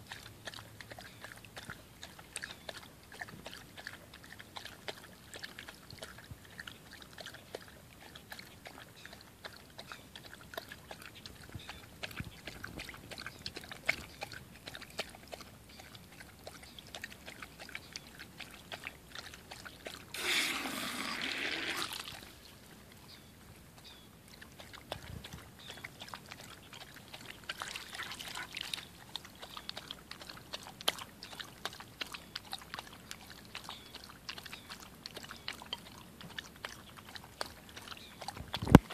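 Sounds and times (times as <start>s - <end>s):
dog lapping water: 0.0s - 38.9s
hose trickling water: 0.0s - 38.9s
splashy rush of water: 20.1s - 22.3s.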